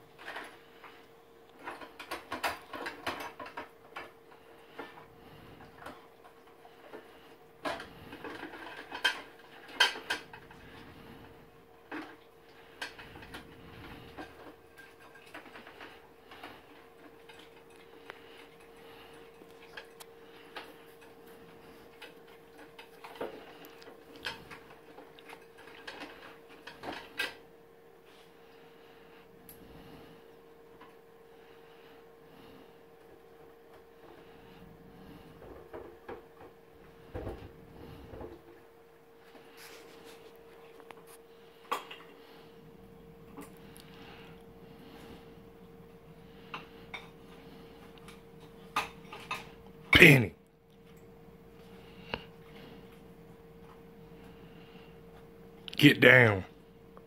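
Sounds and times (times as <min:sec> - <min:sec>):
faint steady hum: 0:00.0 - 0:57.0
dishes clattering in a sink: 0:01.6 - 0:04.2, 0:07.6 - 0:11.0, 0:12.8 - 0:21.2.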